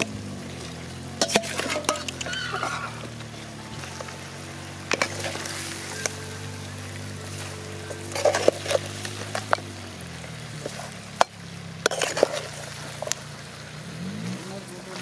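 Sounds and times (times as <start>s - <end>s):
low steady hum: 0.0s - 15.0s
spatula clanking and scraping pan: 1.0s - 4.1s, 4.8s - 9.8s, 10.6s - 13.2s.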